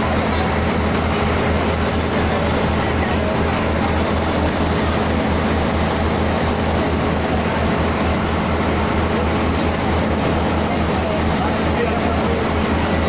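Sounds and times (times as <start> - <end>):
boat engine droning: 0.0 - 13.0
rushing noise: 0.0 - 13.0.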